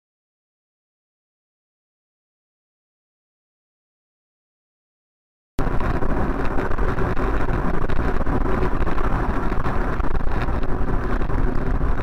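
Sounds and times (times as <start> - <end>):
car road and engine noise: 5.6 - 12.0.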